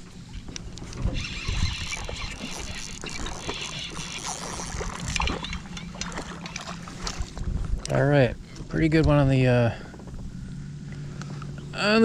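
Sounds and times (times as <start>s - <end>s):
fishing reel whirring and clicking: 0.4s - 7.9s.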